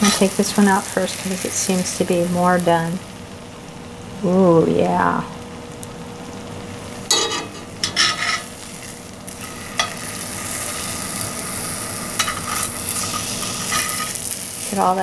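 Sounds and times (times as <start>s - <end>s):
meat sizzling in a skillet: 0.0s - 3.9s, 5.4s - 15.0s
metal tongs clacking and scraping: 7.1s - 8.4s, 12.2s - 14.1s.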